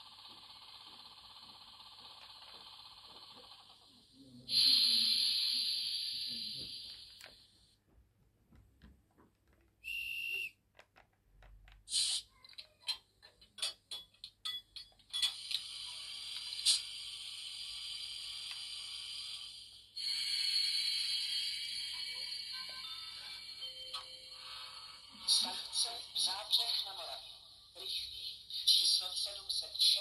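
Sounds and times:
steady hiss: 4.2 - 7.3, 15.4 - 22.6
loud hiss: 4.5 - 7.1, 11.9 - 12.2, 15.6 - 22.0.

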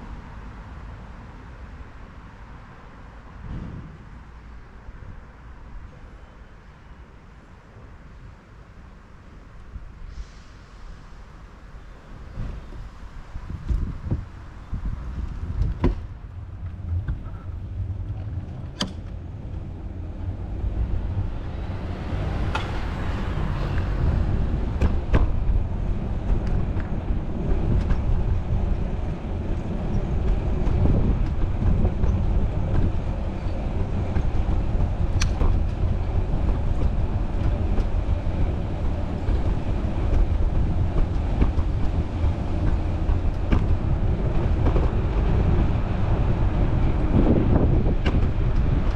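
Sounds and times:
wind rumbling on microphone: 9.6 - 48.9.

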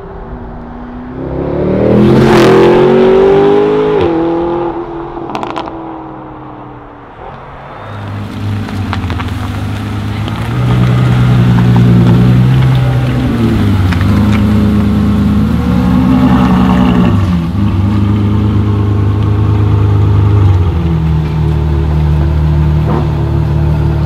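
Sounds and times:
sports car engine driving off: 7.8 - 24.0.

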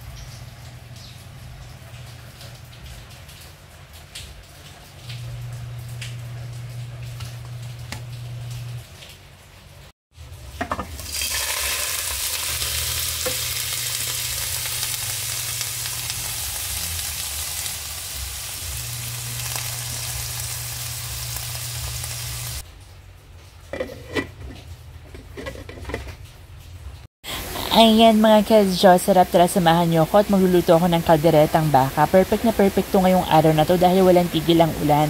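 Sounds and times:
meat and garlic sizzling in oil: 10.6 - 22.6.

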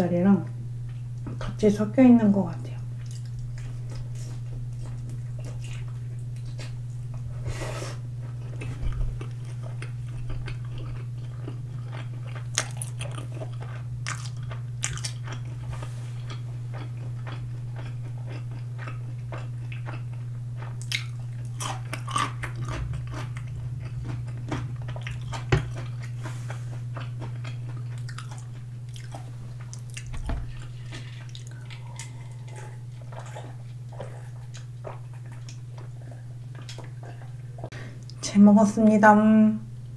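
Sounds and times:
steady low hum: 0.0 - 39.9
chewing crunchy fried chicken: 2.8 - 7.4, 8.0 - 38.2.

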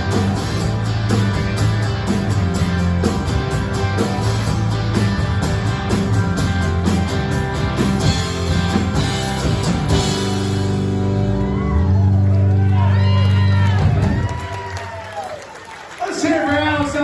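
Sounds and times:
acoustic guitar: 0.0 - 12.3
electric bass: 0.0 - 14.7
electric guitar: 0.0 - 15.0.

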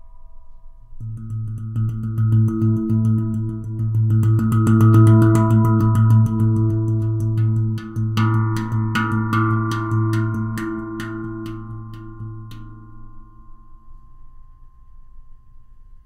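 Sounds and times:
handpan played with fingers: 1.0 - 13.8.

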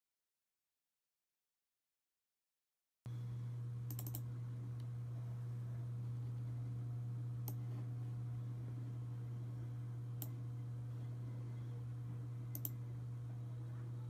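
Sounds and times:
steady low hum: 3.1 - 14.0
computer mouse clicks: 3.9 - 4.9, 7.4 - 7.6, 12.5 - 12.8.

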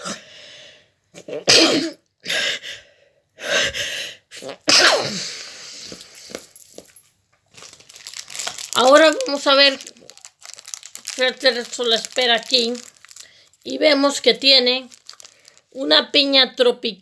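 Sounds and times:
person sneezing: 1.2 - 2.6, 3.5 - 6.0.

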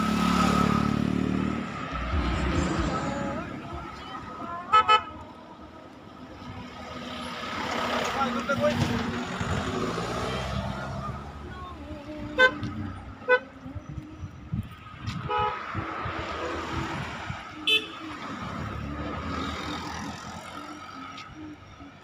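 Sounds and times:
car driving past: 0.0 - 4.5
car horn toots: 12.4 - 13.4, 17.7 - 18.0.

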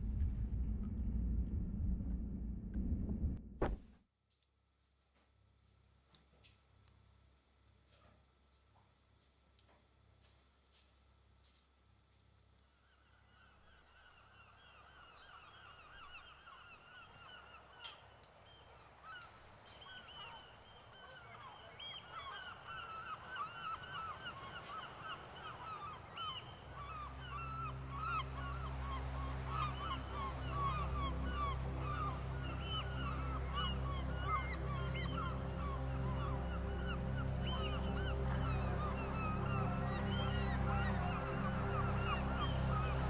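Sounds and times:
low steady drone: 0.0 - 3.8, 26.5 - 43.0.

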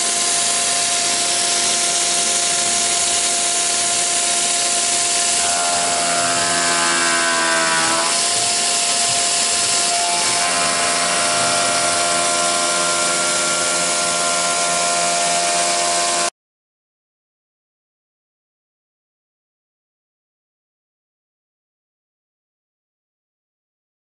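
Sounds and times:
milling machine spindle whine: 0.0 - 16.3.

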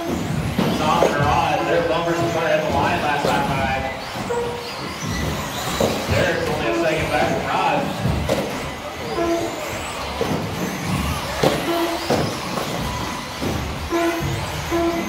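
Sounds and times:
tyre noise: 0.0 - 15.0
short beeps: 9.0 - 9.6, 11.6 - 12.1, 13.9 - 15.0.

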